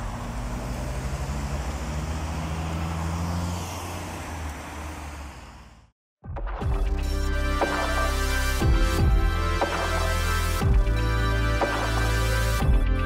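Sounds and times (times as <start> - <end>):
car engine humming: 0.0 - 5.9
road traffic: 0.0 - 6.0, 7.1 - 12.6.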